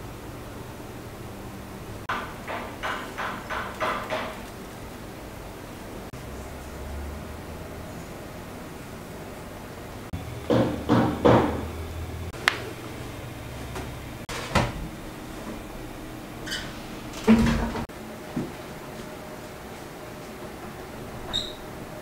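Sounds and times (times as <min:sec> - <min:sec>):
knock: 0:02.1 - 0:04.4, 0:10.5 - 0:11.7.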